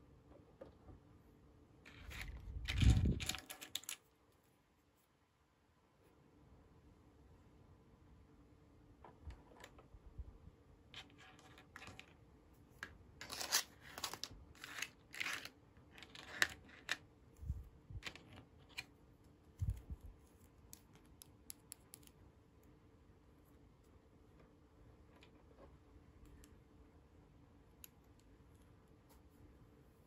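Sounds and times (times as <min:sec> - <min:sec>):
plastic toy pieces clicking: 0:02.0 - 0:04.0.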